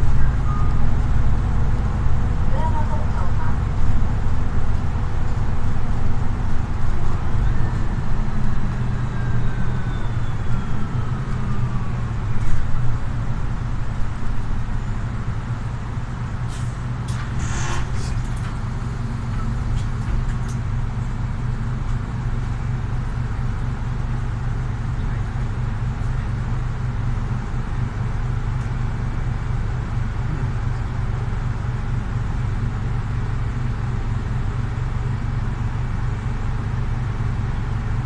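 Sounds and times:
bus diesel engine drone: 0.0s - 38.0s
air hiss: 16.5s - 18.4s.

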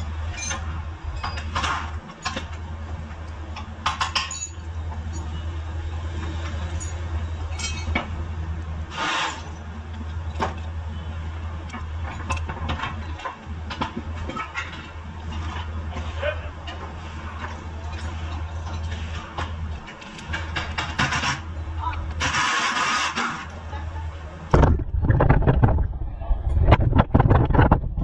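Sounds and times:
metal tools clinking: 0.3s - 1.5s, 4.1s - 5.4s, 6.7s - 8.0s
steady low hum: 23.6s - 28.0s.

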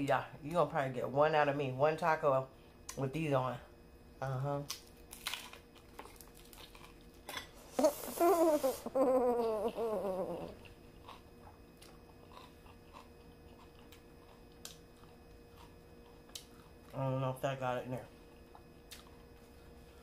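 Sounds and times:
quiet chewing: 4.7s - 7.2s, 10.4s - 17.0s, 18.5s - 20.0s
woman humming with closed mouth: 7.8s - 10.7s.

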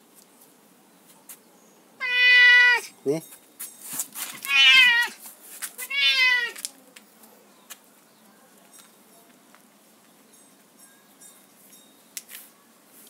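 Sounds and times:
cat meowing: 2.0s - 2.9s, 4.4s - 5.2s, 5.8s - 6.6s.

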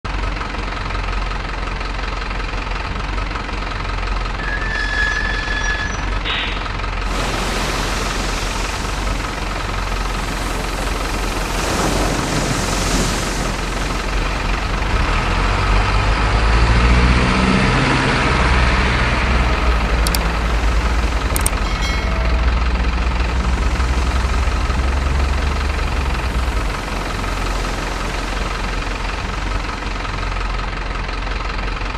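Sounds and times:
splashing water: 7.0s - 30.6s
model truck engine running: 19.4s - 21.6s.

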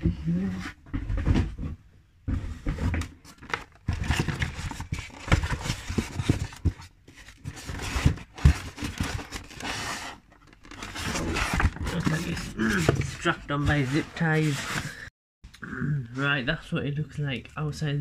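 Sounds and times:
packaging rustling and tearing: 3.2s - 14.9s.

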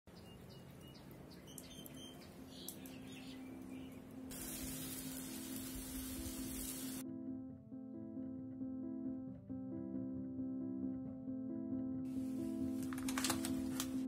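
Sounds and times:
birds chirping: 0.1s - 5.6s
meat sizzling on a grill: 4.3s - 7.0s.

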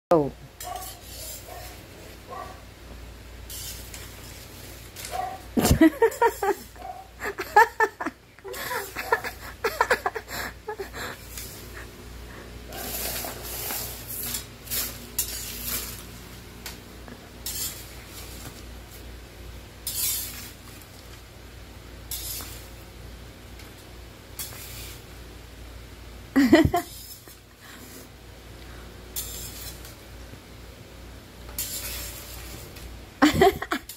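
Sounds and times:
metal ladle scraping floor: 0.6s - 2.0s, 3.5s - 5.1s, 12.7s - 16.2s, 17.4s - 19.0s, 19.8s - 20.7s, 22.1s - 22.7s, 29.2s - 30.0s, 31.5s - 32.8s.

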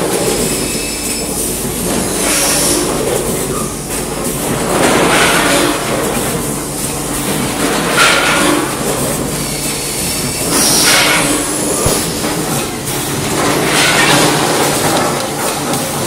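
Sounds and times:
packaging machine clatter: 11.8s - 16.0s.

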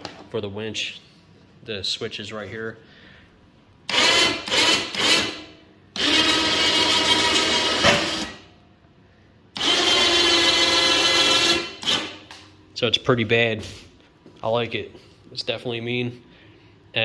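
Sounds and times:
electric winch motor whining: 6.0s - 8.4s, 9.6s - 12.1s.

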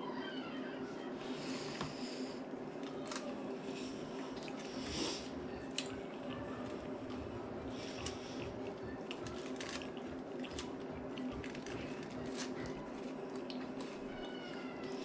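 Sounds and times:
steady low hum: 0.0s - 15.0s
soft squishing of food: 0.2s - 15.0s
aluminium foil crinkling: 9.0s - 14.1s.

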